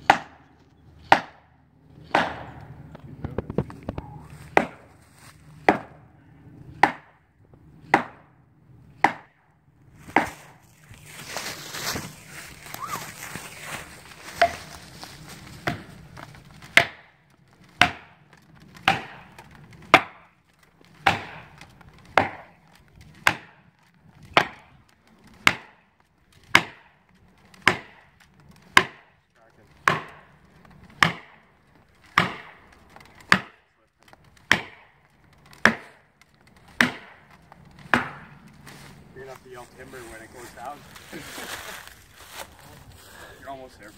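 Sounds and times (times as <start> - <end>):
hammer striking wedges: 0.0 - 1.5, 2.1 - 2.6, 4.5 - 4.9, 5.6 - 6.0, 6.8 - 7.2, 7.8 - 8.3, 9.0 - 9.4, 16.7 - 17.1, 17.8 - 18.2, 18.8 - 19.3, 19.9 - 20.2, 21.0 - 21.5, 22.1 - 22.5, 24.3 - 24.7, 25.4 - 25.8, 26.5 - 26.9, 27.6 - 28.0, 28.7 - 29.1, 29.8 - 30.3, 31.0 - 31.4, 32.1 - 32.6, 33.2 - 33.6, 34.4 - 34.9, 35.6 - 36.0, 36.7 - 37.3, 37.9 - 38.3.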